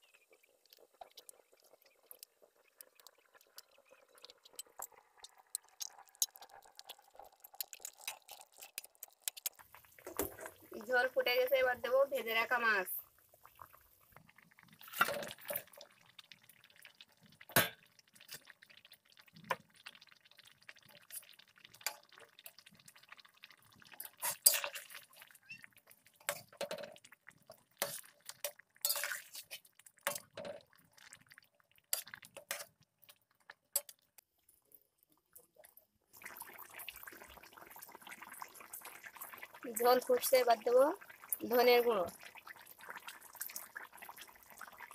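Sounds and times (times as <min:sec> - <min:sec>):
curry boiling hiss: 0:00.0 - 0:34.1, 0:36.1 - 0:44.9
splashes into boiling curry: 0:16.8 - 0:26.5
metal spatula clinking on metal: 0:28.8 - 0:29.1.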